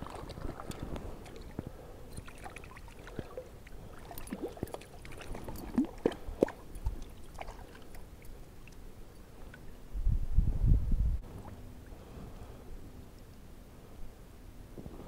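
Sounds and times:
water splashing and trickling: 0.0 - 9.8.

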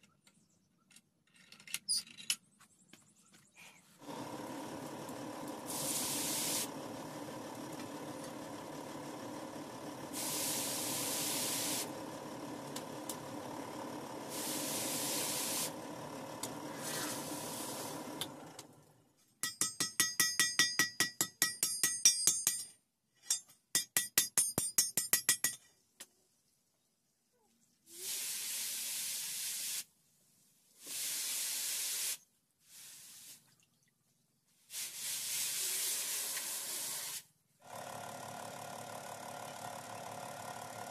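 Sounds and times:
short bursts of hiss: 5.7 - 6.7, 10.2 - 11.9, 14.3 - 15.7, 16.8 - 17.9, 27.9 - 29.9, 30.8 - 33.4, 34.7 - 37.3
hammer striking iron on anvil: 19.4 - 25.6.

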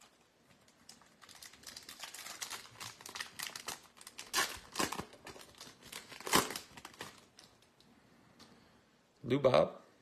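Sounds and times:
foil wrapper crinkling and tearing: 0.0 - 7.7.

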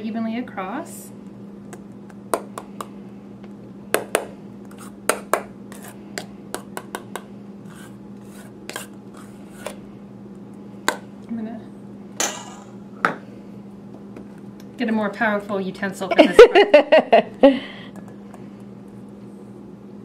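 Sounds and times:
utensil scraping metal bowl: 4.7 - 5.0, 5.7 - 6.0, 7.6 - 9.8.

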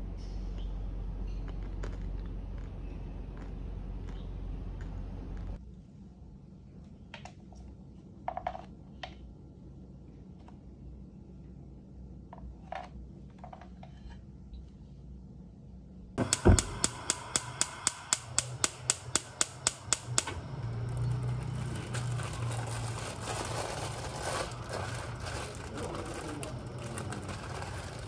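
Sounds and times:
gas stove igniter clicking: 16.2 - 21.4
gas burner hissing: 16.2 - 28.0.

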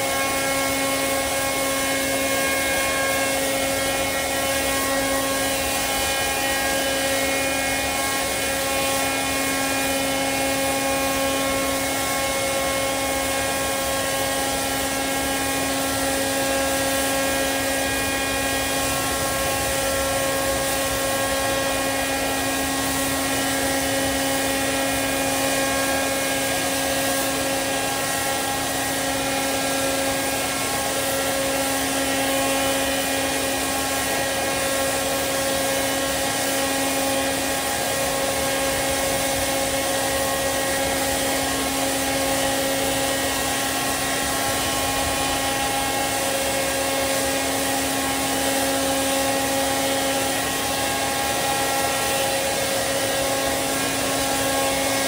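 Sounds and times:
ground equipment droning: 11.9 - 29.0.

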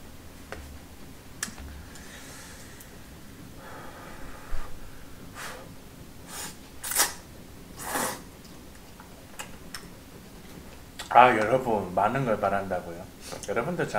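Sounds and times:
person slurping noodles: 6.3 - 7.2, 7.8 - 8.3.

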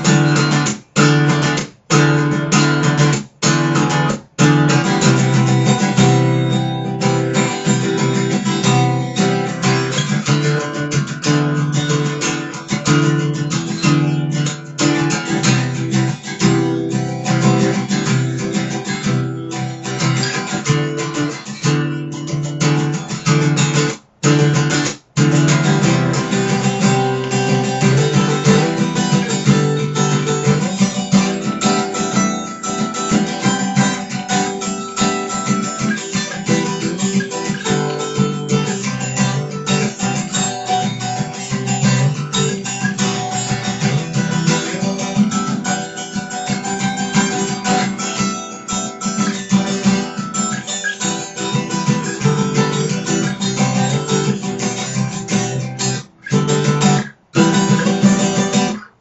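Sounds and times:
guitar strumming and picking: 0.0 - 59.0.

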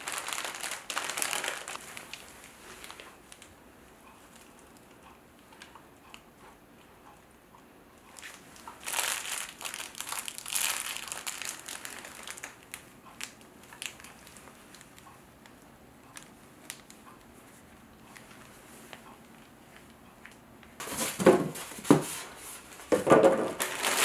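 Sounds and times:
plush toy crinkling: 0.0 - 3.5, 8.2 - 15.0, 16.2 - 17.0, 23.3 - 24.0.

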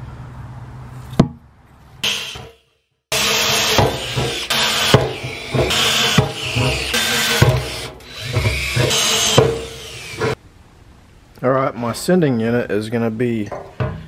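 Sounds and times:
cordless drill boring sheet metal: 2.0 - 10.4
knocks: 3.1 - 10.4.

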